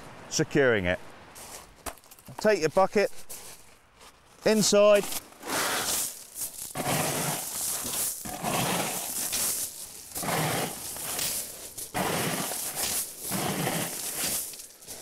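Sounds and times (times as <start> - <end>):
bucket scooping pebbles: 5.1 - 15.0.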